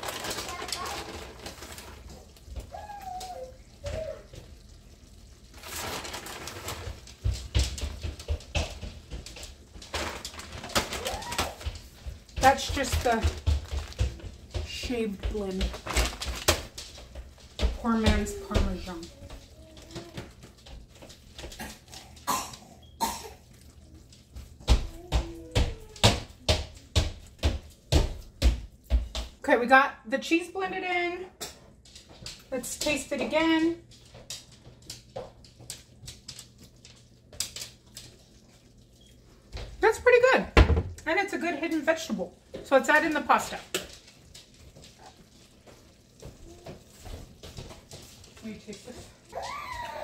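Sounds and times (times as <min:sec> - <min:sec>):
plastic bag crinkling: 0:00.0 - 0:07.6, 0:09.5 - 0:22.2
spatula stirring and knocking in pan: 0:00.0 - 0:22.0, 0:23.0 - 0:29.4, 0:34.5 - 0:50.0
utensil stirring thick sauce: 0:23.4 - 0:25.0, 0:35.8 - 0:39.9, 0:42.4 - 0:49.3.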